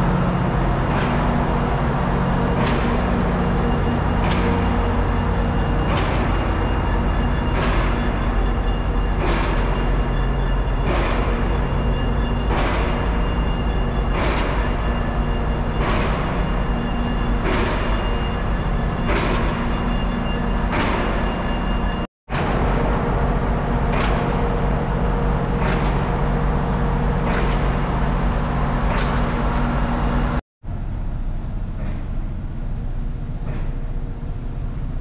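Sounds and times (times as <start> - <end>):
diesel locomotive humming: 0.0 - 20.7.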